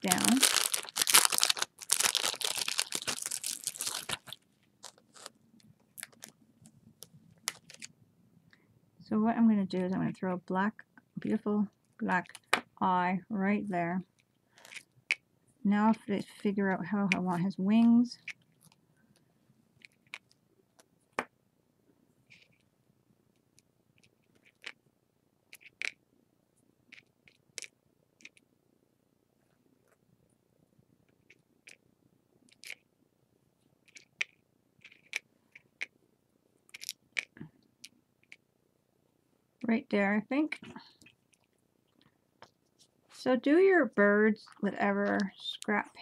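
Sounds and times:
plastic packaging crinkling: 0:00.0 - 0:07.9.

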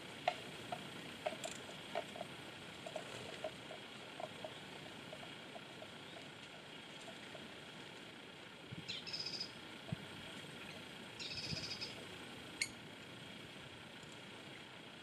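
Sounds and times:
outdoor background noise: 0:00.0 - 0:15.0
bird chattering: 0:00.2 - 0:07.6, 0:08.8 - 0:09.6, 0:10.6 - 0:12.0.

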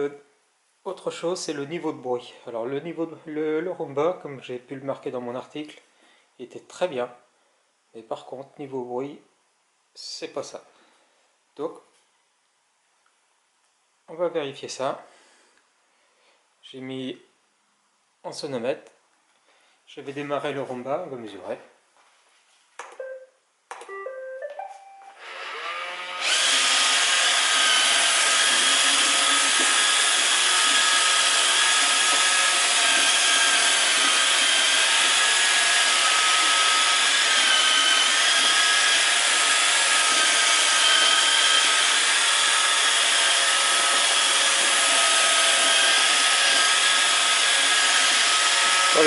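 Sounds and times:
electronic start-up tones: 0:23.9 - 0:25.2
robot vacuum motor whining: 0:25.2 - 0:49.0.

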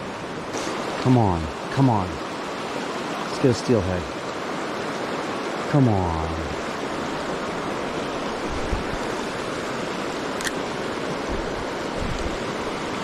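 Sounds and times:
river water rushing: 0:00.0 - 0:13.0
sharp click: 0:10.4 - 0:10.6.

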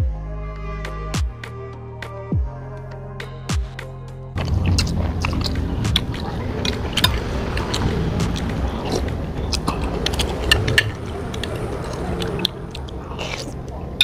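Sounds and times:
chewing and slurping noodles: 0:04.4 - 0:14.0
mouth clicks and smacks: 0:04.4 - 0:14.0.

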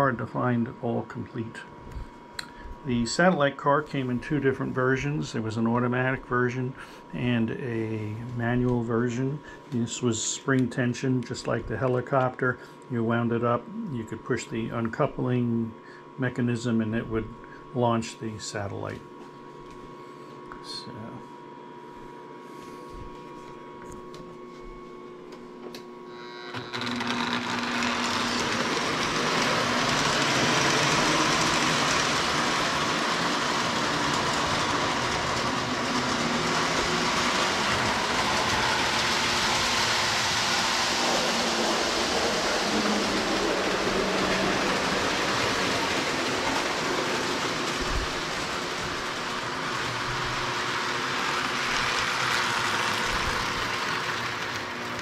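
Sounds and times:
model train running on track: 0:26.7 - 0:55.0.

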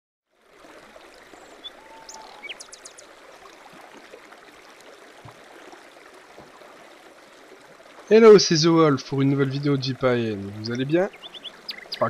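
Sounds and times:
flowing water: 0:00.3 - 0:12.0
bird chirps: 0:01.4 - 0:03.0, 0:11.1 - 0:12.0.

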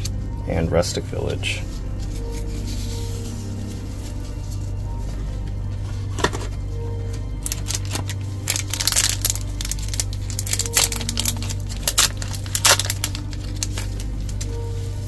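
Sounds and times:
steady low hum: 0:00.0 - 0:15.0
foil wrapper tearing and crinkling: 0:07.4 - 0:14.8.

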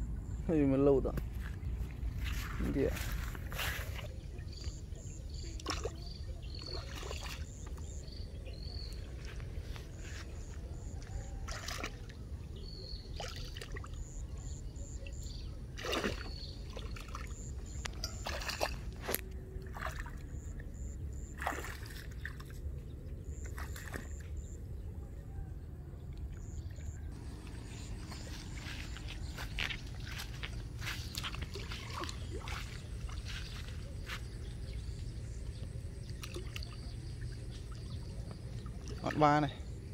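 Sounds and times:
steady low rumble: 0:00.0 - 0:05.4, 0:24.2 - 0:39.9
feet wading through muddy water: 0:01.3 - 0:24.6, 0:26.4 - 0:39.9.

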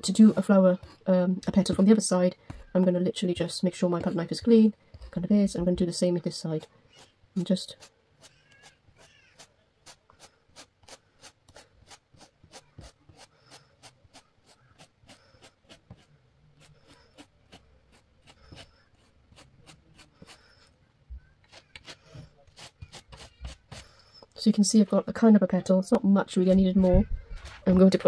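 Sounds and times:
palette knife scraping paste: 0:06.1 - 0:20.7, 0:21.4 - 0:24.3.

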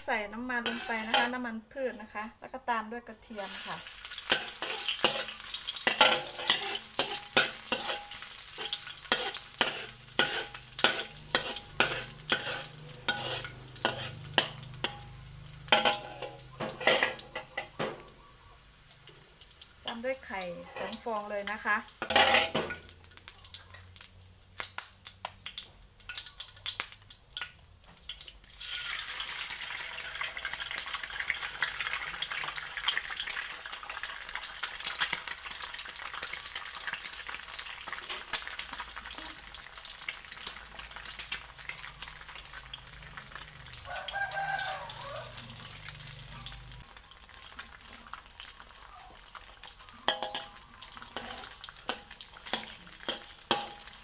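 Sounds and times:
eggs sizzling in oil: 0:00.0 - 0:54.0
rooster crowing: 0:43.7 - 0:46.4.

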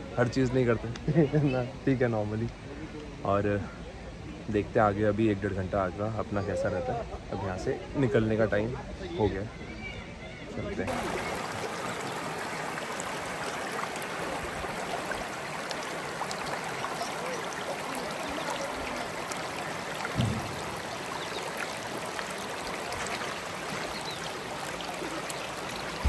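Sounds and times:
flowing water rushing: 0:00.0 - 0:26.0
low thump: 0:20.1 - 0:20.8.

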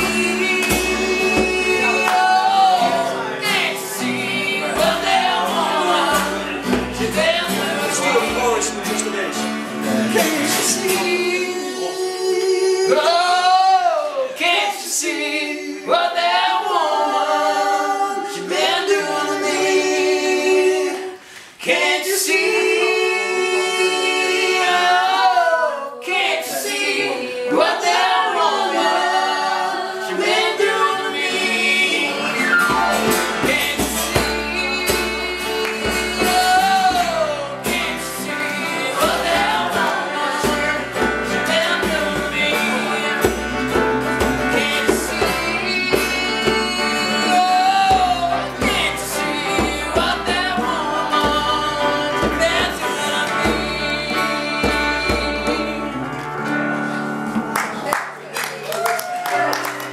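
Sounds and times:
woman and man singing: 0:00.0 - 0:56.2
acoustic guitar: 0:00.0 - 0:58.4, 0:59.2 - 0:59.9
keyboard: 0:30.2 - 0:58.3.

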